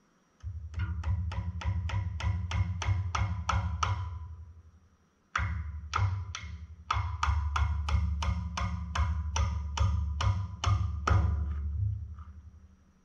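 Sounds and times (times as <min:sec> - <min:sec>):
clicking woodblock beat: 0:00.4 - 0:04.3, 0:05.4 - 0:11.6.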